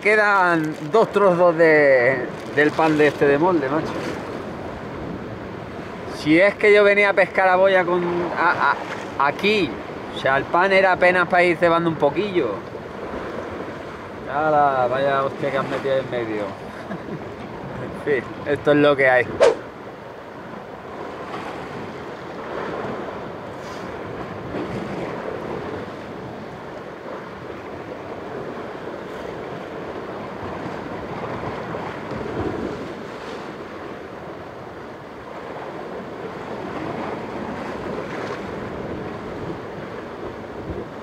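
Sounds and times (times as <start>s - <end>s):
surf washing against rocks: 0.0s - 41.0s
wind on microphone: 19.1s - 19.8s, 20.4s - 41.0s.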